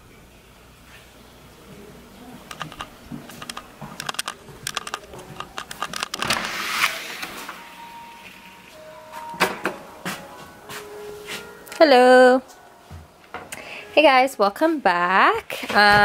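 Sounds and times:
footsteps on tiled floor: 0.8s - 6.2s, 8.7s - 11.6s
rushing noise of door opening: 4.0s - 7.8s.

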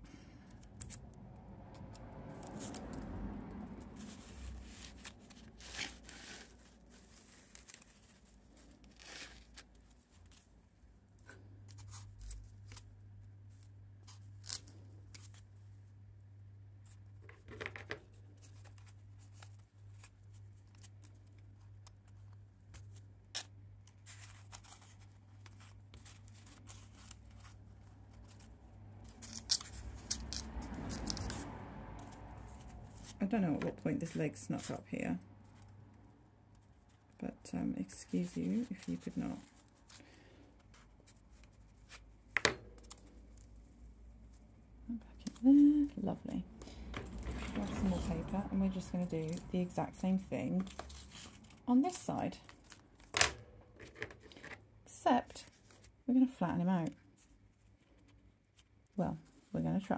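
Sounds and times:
small clicks and scrapes: 0.4s - 3.1s, 50.6s - 54.6s
paper and foam rustling: 3.8s - 15.8s, 23.9s - 31.5s, 36.6s - 46.4s
low steady hum: 18.0s - 59.9s.

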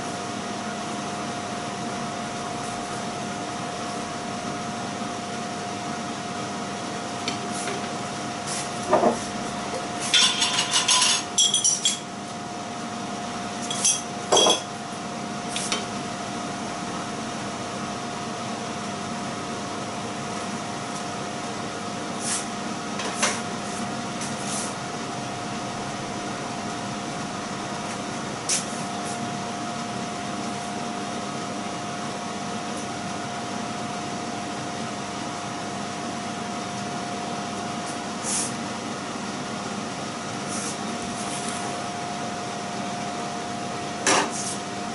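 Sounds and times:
steady hum: 0.0s - 44.9s
plate and utensils clinking: 10.1s - 12.0s.

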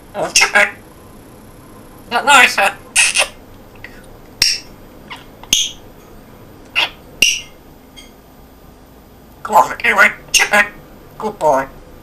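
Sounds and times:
parrot chirping and squeaking: 3.0s - 3.4s, 4.4s - 5.9s, 6.7s - 8.1s.

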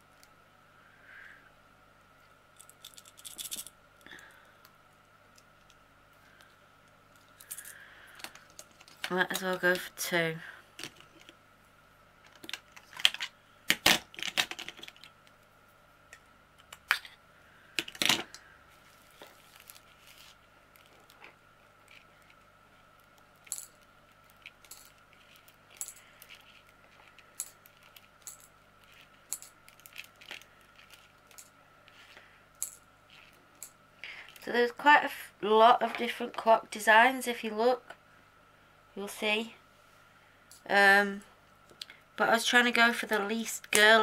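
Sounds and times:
small beads rattling into plastic box: 2.6s - 3.7s, 23.4s - 31.5s, 32.6s - 33.7s.

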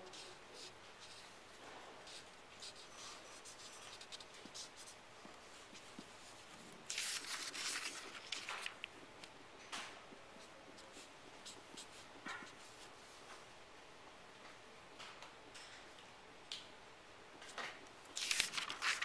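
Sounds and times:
marker scratching on paper: 2.1s - 5.0s.

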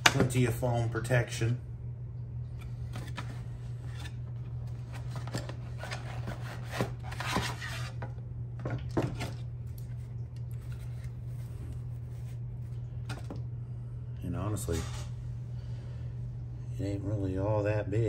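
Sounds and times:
steady low hum: 0.0s - 18.0s
cardboard and foam packaging rustling: 2.9s - 8.0s.

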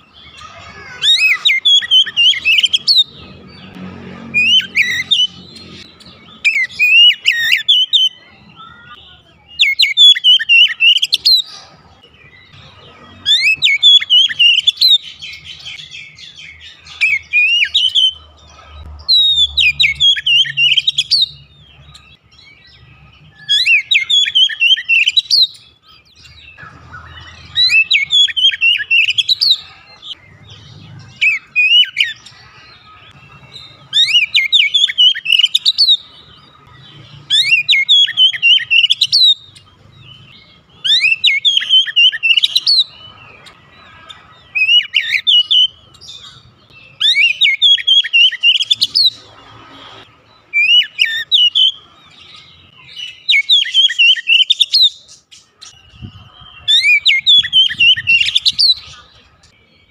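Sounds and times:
bird singing whistled phrases: 0.0s - 3.1s, 6.3s - 11.5s, 13.3s - 18.2s, 19.1s - 21.4s, 22.6s - 29.6s, 32.9s - 36.1s, 37.2s - 39.6s, 40.8s - 43.0s, 44.6s - 49.1s, 50.5s - 51.8s, 52.8s - 55.0s.

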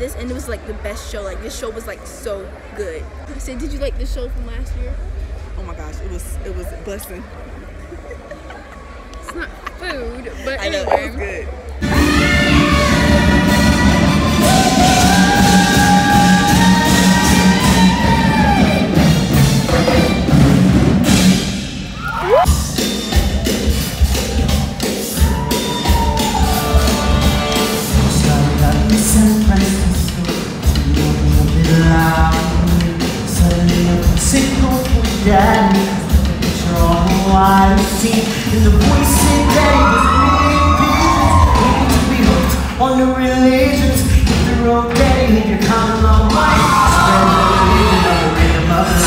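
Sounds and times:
loud live music with driving beat: 11.8s - 49.0s
person singing: 27.8s - 49.0s.

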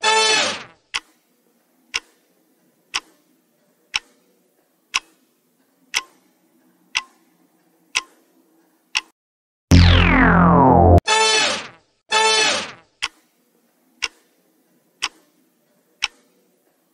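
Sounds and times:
clock-like timer ticks: 0.9s - 1.2s, 1.9s - 2.1s, 2.9s - 3.1s, 3.9s - 4.1s, 4.9s - 5.2s, 5.9s - 6.2s, 6.9s - 7.2s, 7.9s - 8.1s, 8.9s - 9.1s, 13.0s - 13.2s, 14.0s - 14.2s, 15.0s - 15.2s, 16.0s - 16.3s.

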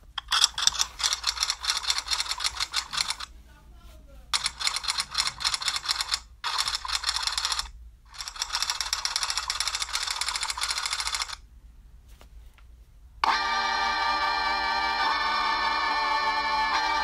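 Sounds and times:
fast keyboard clicking: 0.6s - 3.3s, 4.4s - 11.4s.

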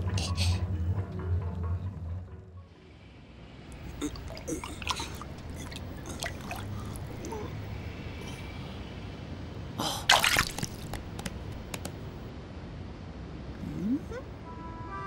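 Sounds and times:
cartoon wet dripping: 3.8s - 7.5s, 10.1s - 11.0s
wet burst: 10.1s - 10.8s.

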